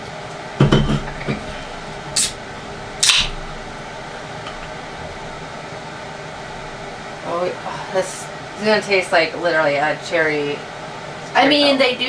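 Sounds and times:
can hissing: 1.1 - 5.2.

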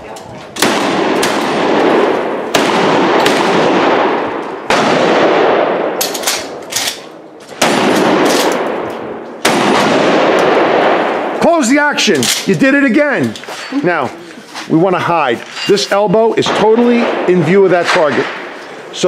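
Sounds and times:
shotgun blasts echoing: 0.6 - 6.6, 7.6 - 11.4, 16.4 - 18.6.

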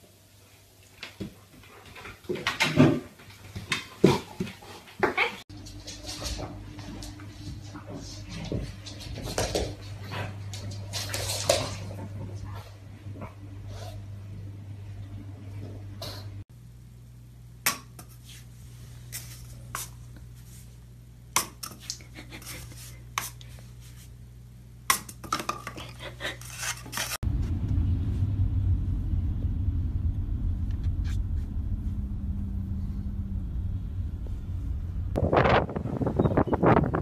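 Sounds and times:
road rumble inside moving car: 27.2 - 35.2.

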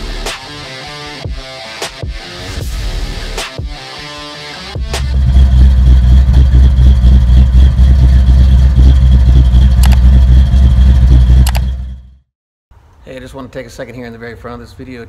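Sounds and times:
car engine running: 4.7 - 12.3.

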